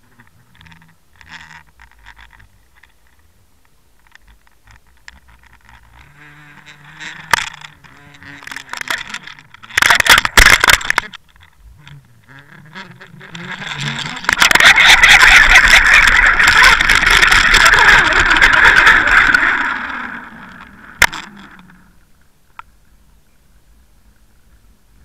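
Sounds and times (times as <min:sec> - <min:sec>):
rushing crackling water: 0:04.0 - 0:11.6, 0:12.6 - 0:22.7
clicks and knocks: 0:07.2 - 0:11.6.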